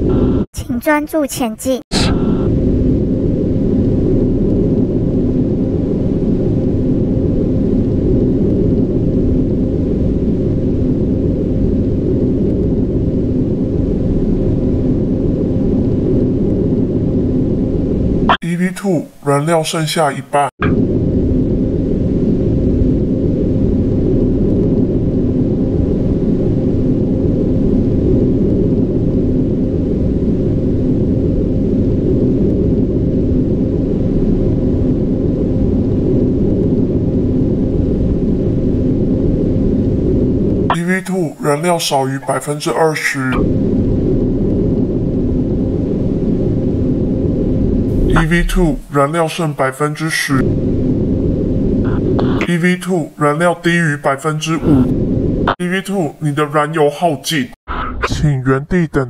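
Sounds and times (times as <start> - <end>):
low rumbling drone: 1.9 - 18.4, 20.6 - 56.6
faint held hum: 47.9 - 50.8
faint even hum: 47.9 - 54.9.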